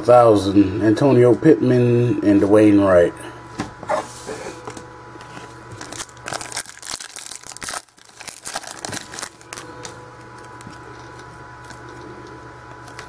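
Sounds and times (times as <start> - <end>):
cards crinkling and clicking: 5.7 - 12.1.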